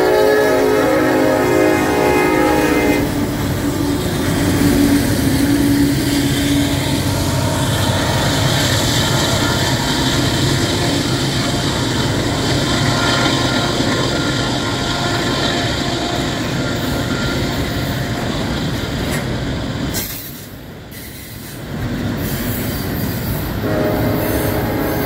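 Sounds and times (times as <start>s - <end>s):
locomotive horn: 0.0s - 11.6s, 12.8s - 18.2s, 23.6s - 25.0s
locomotive engines droning: 0.0s - 25.0s.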